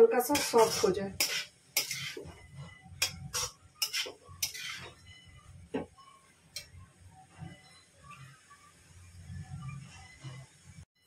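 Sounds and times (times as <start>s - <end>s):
steel spatula scraping a pan: 0.1s - 5.4s.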